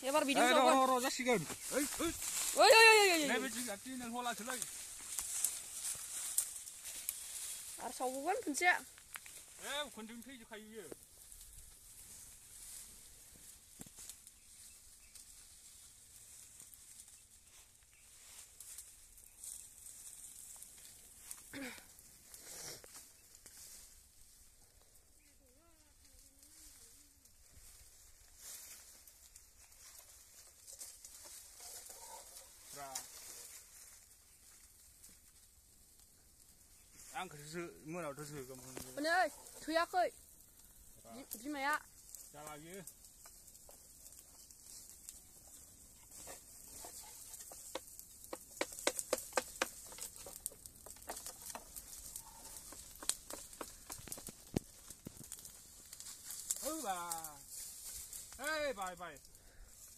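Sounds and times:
person's voice: 0:00.0 - 0:01.5
fire crackling and popping: 0:00.0 - 0:59.9
twigs and leaves rustling: 0:00.0 - 0:59.9.

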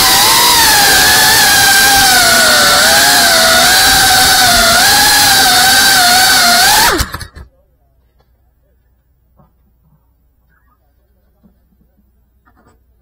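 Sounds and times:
quadcopter motors whining: 0:00.0 - 0:07.4.

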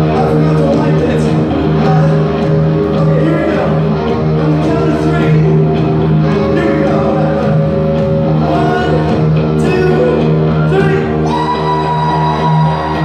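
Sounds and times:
bass guitar: 0:00.0 - 0:13.0
drums: 0:00.0 - 0:13.0
electric guitars: 0:00.0 - 0:13.0
person singing: 0:00.0 - 0:13.0.

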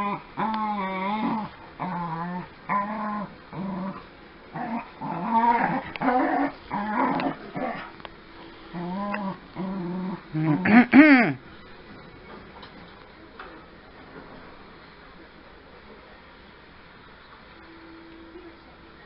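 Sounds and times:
dogs play-growling: 0:00.0 - 0:08.1, 0:08.7 - 0:10.9.

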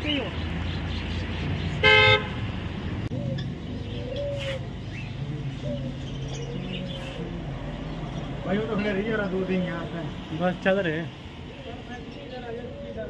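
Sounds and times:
street traffic rumbling: 0:00.0 - 0:13.0
vehicle horn blast: 0:01.8 - 0:02.4.

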